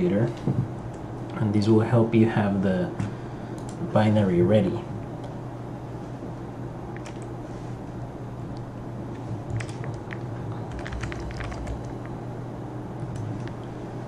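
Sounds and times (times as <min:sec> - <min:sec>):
steady low hum: 0:00.0 - 0:14.0
keyboard keystroke clicks: 0:09.6 - 0:12.1.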